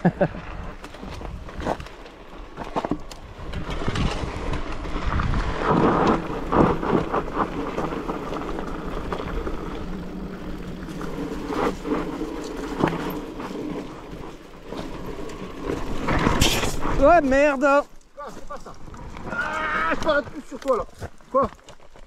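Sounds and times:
bike tyre noise: 0.0s - 22.0s
bike clicks and knocks: 0.6s - 17.0s
wind rumbling on microphone: 3.2s - 14.2s.

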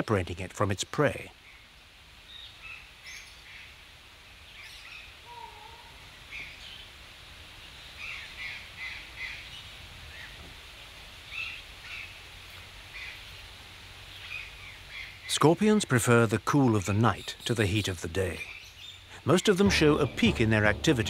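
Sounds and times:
faint birds calling: 4.4s - 7.0s, 11.2s - 15.5s, 16.6s - 21.0s.

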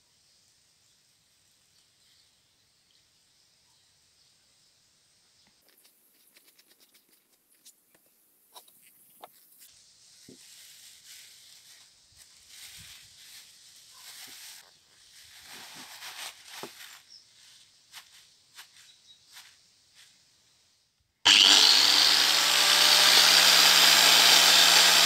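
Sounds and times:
plastic bag crinkling: 14.0s - 17.1s.

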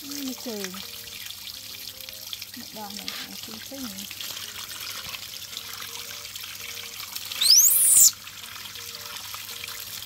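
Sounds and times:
hose water splashing on concrete: 0.0s - 1.0s, 2.3s - 10.0s
shrill upward sweeping sound: 7.4s - 8.1s.

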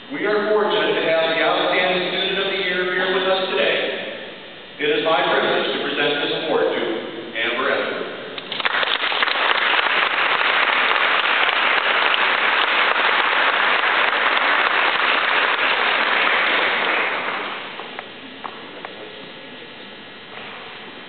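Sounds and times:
audience applauding: 8.5s - 17.9s.

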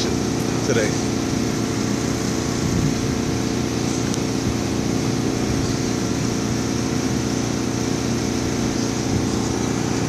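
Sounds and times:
motor humming: 0.0s - 10.0s.

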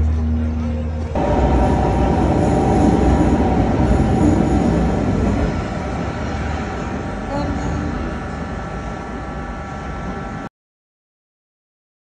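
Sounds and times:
train whine: 0.0s - 10.5s
train wheels rumbling on rails: 1.0s - 10.5s.

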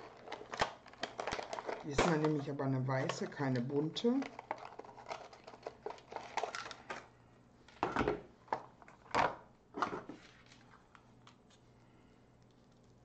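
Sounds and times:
rustling craft materials: 0.0s - 7.1s.

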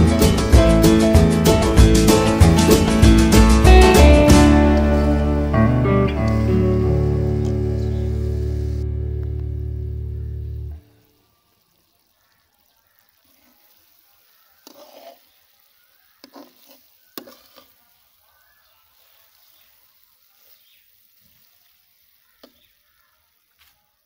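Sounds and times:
vegetables sizzling in a pan: 1.6s - 24.0s
metal spatula scraping a pan: 13.3s - 18.0s.

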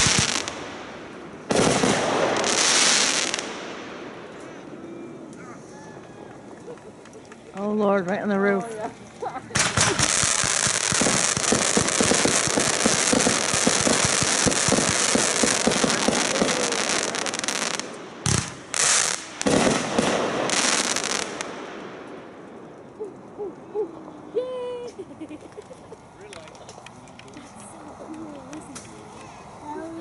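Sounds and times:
firework bang: 0.0s - 0.6s, 1.5s - 4.2s, 9.5s - 22.2s
fireworks crackling and popping: 0.0s - 5.4s, 6.3s - 23.7s, 24.5s - 29.6s.

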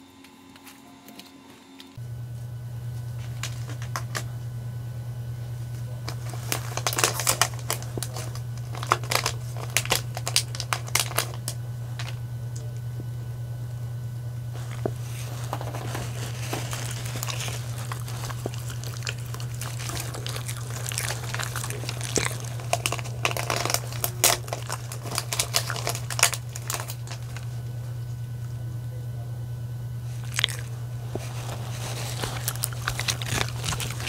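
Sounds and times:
low steady hum: 0.0s - 34.0s
plastic wrapping crinkling: 3.2s - 4.3s, 5.9s - 12.2s, 14.6s - 27.8s, 30.1s - 34.0s.

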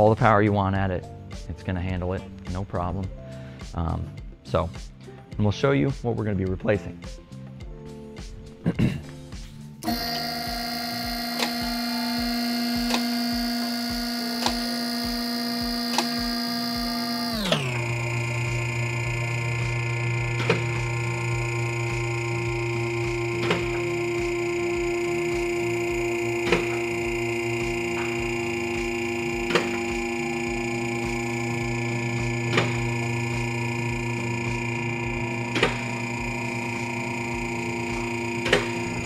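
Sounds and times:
hydraulic pump motor whining: 9.8s - 39.0s.

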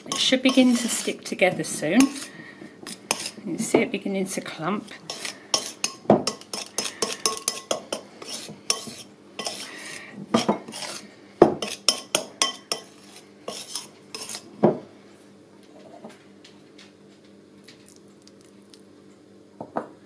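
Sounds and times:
knife scraping ceramic bowl: 0.0s - 3.4s, 4.8s - 14.5s.

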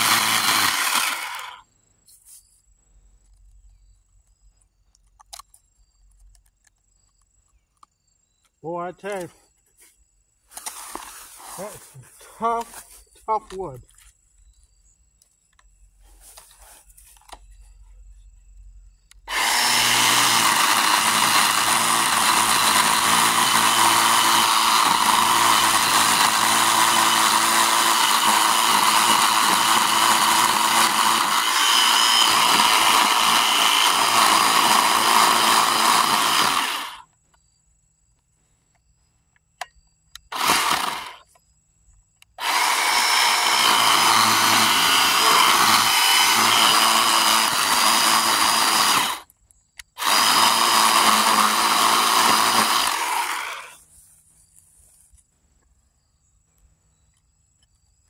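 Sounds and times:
chainsaw cutting wood: 0.0s - 1.7s, 19.2s - 37.1s, 40.2s - 41.3s, 42.4s - 53.8s.

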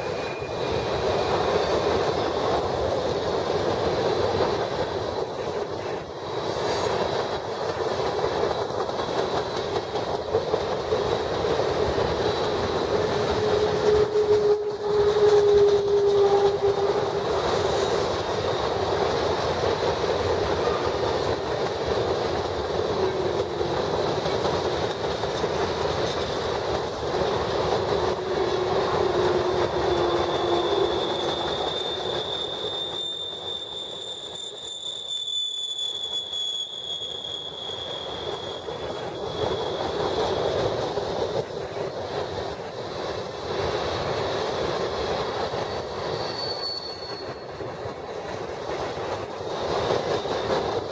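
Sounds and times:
wheel squeal: 0.0s - 1.9s, 28.2s - 40.7s, 45.5s - 47.7s
freight train rolling past: 0.0s - 50.9s.

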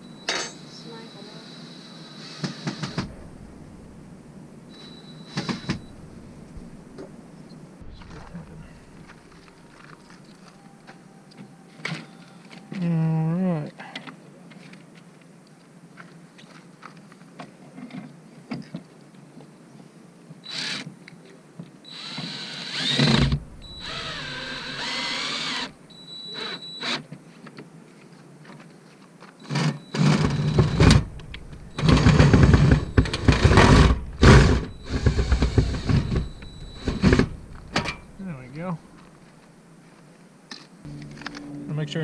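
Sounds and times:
cordless drill driving screws: 20.5s - 20.9s, 21.9s - 25.7s, 29.5s - 38.0s.

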